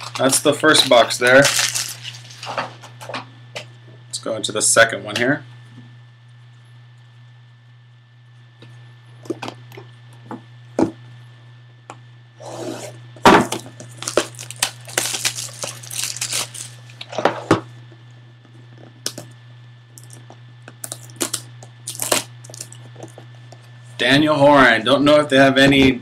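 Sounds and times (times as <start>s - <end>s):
plastic wrap tearing and crinkling: 0.0s - 2.8s, 13.5s - 17.0s, 20.8s - 23.2s.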